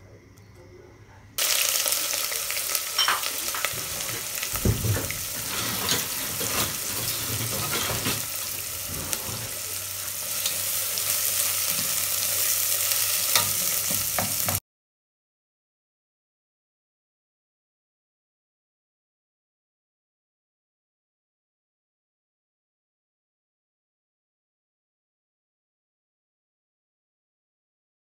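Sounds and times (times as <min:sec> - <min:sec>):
onions sizzling in hot oil: 0:01.4 - 0:14.6
spatula scraping a pot: 0:05.0 - 0:10.6.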